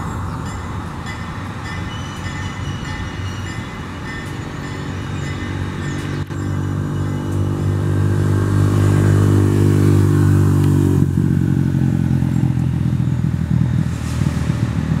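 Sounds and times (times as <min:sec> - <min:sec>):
diesel locomotive engine humming: 0:00.0 - 0:15.0
motorcycle passing: 0:06.6 - 0:15.0.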